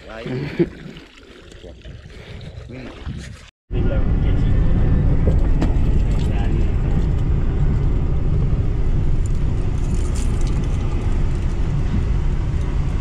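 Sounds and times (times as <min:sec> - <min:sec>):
car engine and tyre rumble: 0:03.7 - 0:13.0.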